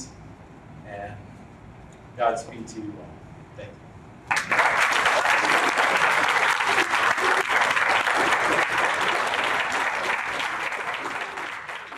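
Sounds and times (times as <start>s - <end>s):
crowd applauding: 4.3s - 11.9s.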